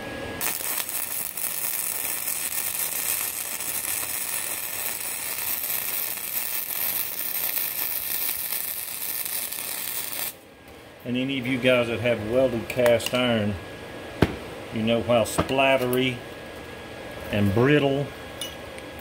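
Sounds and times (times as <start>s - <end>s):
welder arc crackling: 0.4s - 10.4s.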